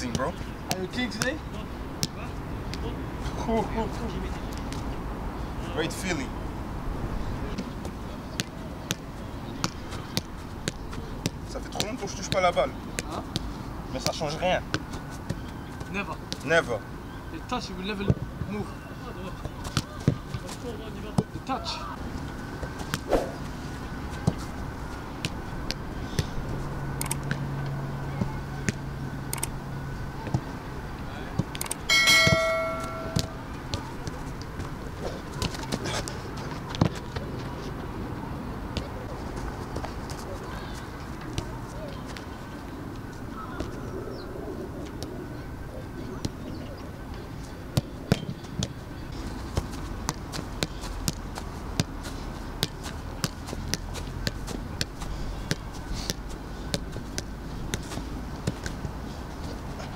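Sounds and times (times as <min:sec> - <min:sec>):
foot tapping football: 0:49.5 - 0:59.6
football taps on feet: 0:49.6 - 0:52.0.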